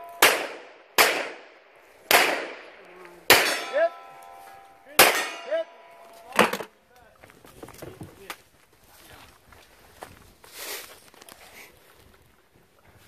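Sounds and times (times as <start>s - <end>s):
rifle shots: 0.2s - 3.9s, 5.0s - 5.5s
steel plate ringing clang: 3.3s - 6.6s.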